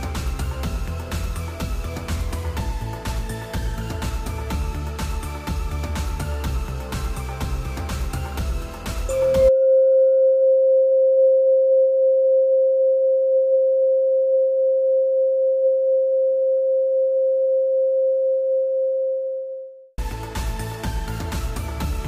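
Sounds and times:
steady pure tone: 0.0 - 22.0
faint higher tone: 9.1 - 19.9.

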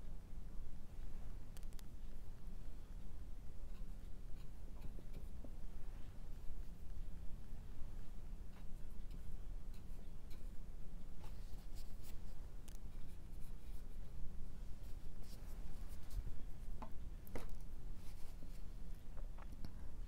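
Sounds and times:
steady low hum: 0.0 - 20.0
brush scratching paint on canvas: 8.5 - 16.8, 17.9 - 18.8.

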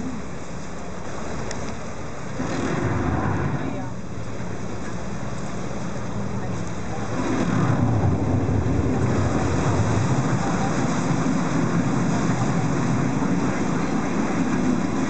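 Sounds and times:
boat motor rumbling: 0.0 - 15.0
moving air: 2.3 - 5.2, 6.8 - 15.0.

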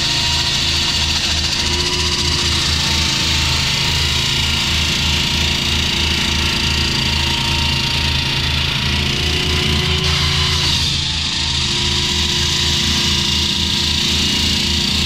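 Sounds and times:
concrete saw cutting: 0.0 - 15.0.

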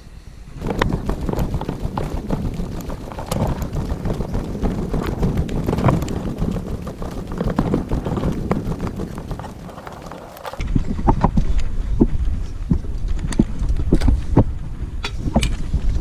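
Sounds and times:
wind buffeting microphone: 0.5 - 16.0
footsteps crunching on dry grass: 0.6 - 10.6.

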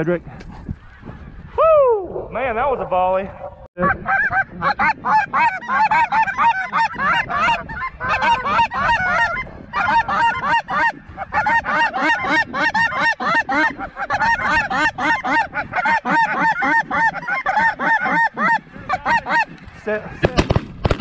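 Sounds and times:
geese honking: 3.4 - 19.9.

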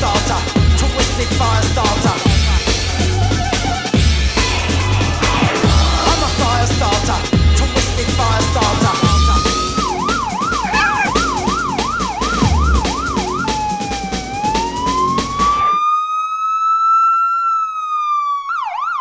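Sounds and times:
electronic music with heavy beat: 5.6 - 14.1
fire engine siren: 8.2 - 19.0.

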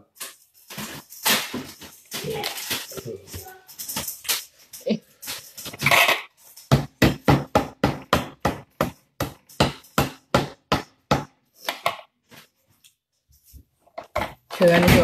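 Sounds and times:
knife chopping on a board: 6.7 - 11.9.

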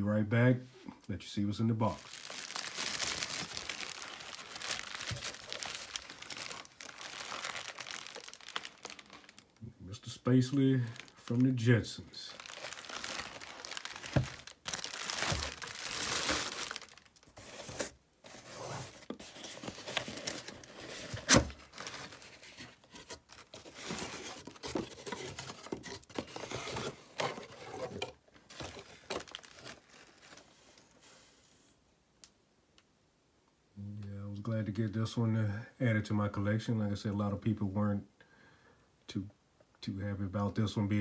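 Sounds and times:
plastic air pillows crinkling: 1.8 - 9.6, 10.2 - 30.6.

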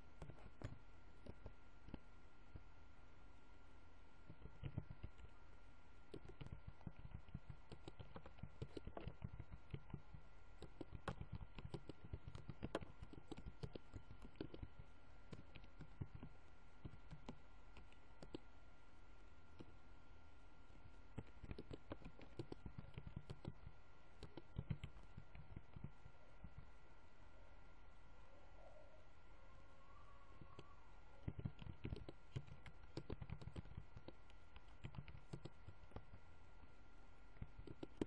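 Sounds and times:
faint steady hum: 0.0 - 38.0
computer keyboard typing: 4.3 - 5.3, 6.1 - 18.5, 21.1 - 26.6, 31.2 - 36.2, 37.4 - 38.0.

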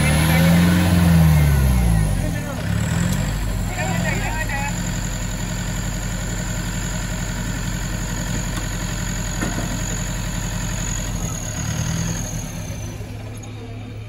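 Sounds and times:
vehicle engine idling: 0.0 - 14.0.

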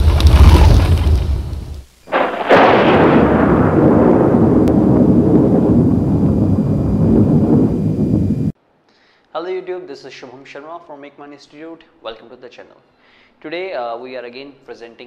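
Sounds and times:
deep boom with rumbling tail: 0.0 - 8.5.

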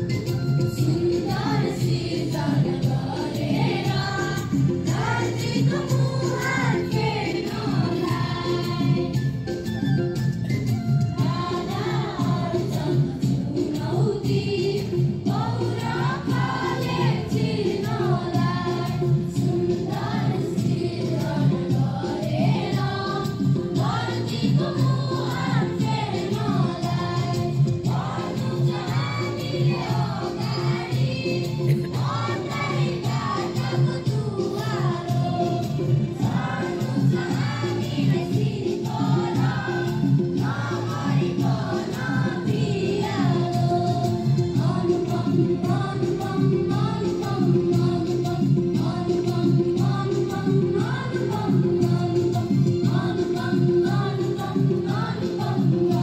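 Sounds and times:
many voices singing in unison: 0.0 - 9.6, 11.2 - 56.0
instrumental accompaniment with beat: 0.0 - 56.0.

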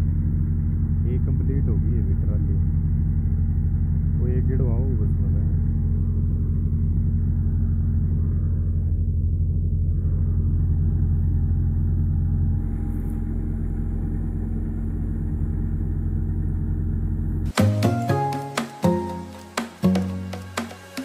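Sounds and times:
tractor diesel engine running: 0.0 - 17.6
music: 17.5 - 21.0.

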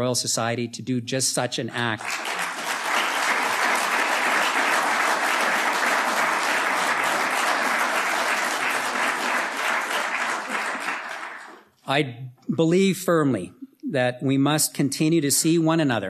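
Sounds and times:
audience applauding: 1.8 - 11.7.

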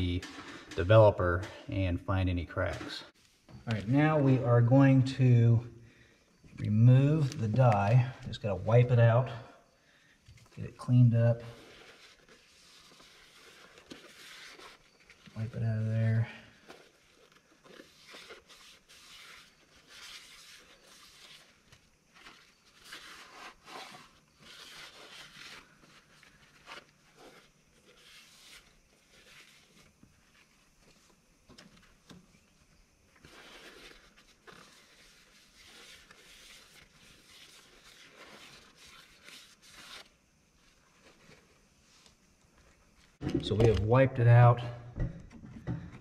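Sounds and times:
towel rubbing metal: 17.6 - 29.8.

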